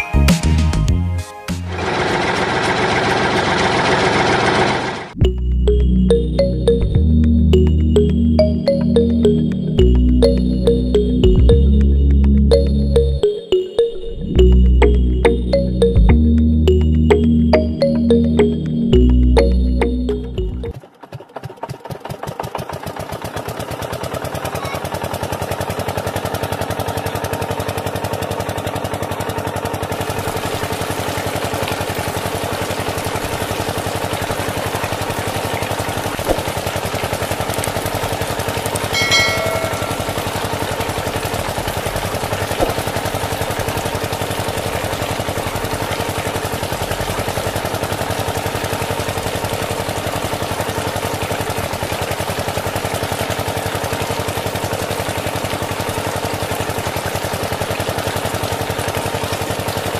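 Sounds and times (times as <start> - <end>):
model engine pump clattering: 20.7 - 59.9.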